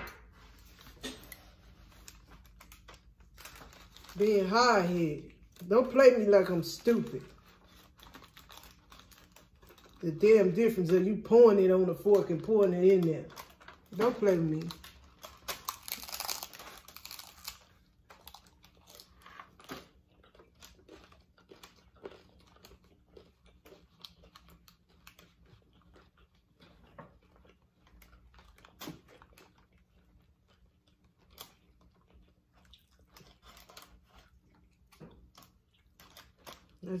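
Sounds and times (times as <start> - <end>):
crunching of taco shells: 0.0 - 37.0.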